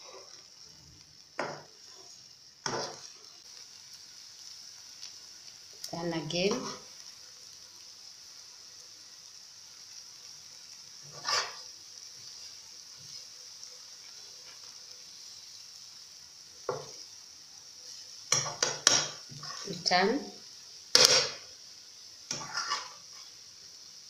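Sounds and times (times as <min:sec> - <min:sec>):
eggs sizzling in frying pan: 0:00.0 - 0:24.0
metal utensil scraping pan: 0:01.4 - 0:03.1, 0:06.5 - 0:06.9, 0:11.1 - 0:11.6, 0:18.3 - 0:19.9, 0:21.0 - 0:21.4, 0:22.3 - 0:23.3.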